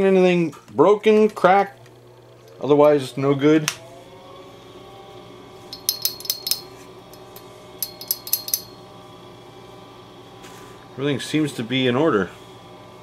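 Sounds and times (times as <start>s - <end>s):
faint steady hum: 1.3s - 11.2s
metallic clicks and clinks: 5.7s - 8.8s.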